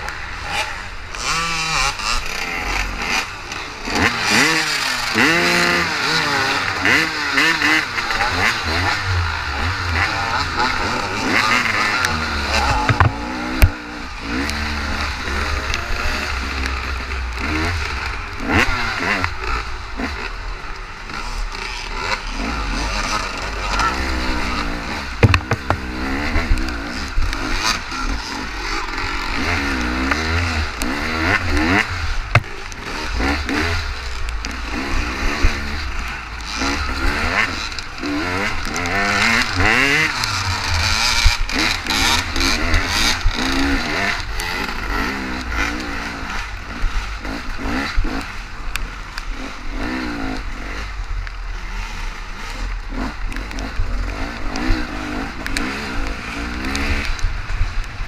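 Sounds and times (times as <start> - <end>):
dirt bike engine revving: 0.0 - 58.0
bike knocking over rough ground: 25.2 - 25.9.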